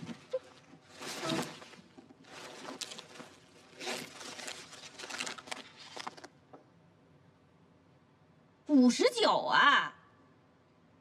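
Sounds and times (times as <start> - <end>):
paper rustling and crinkling: 0.0 - 6.4.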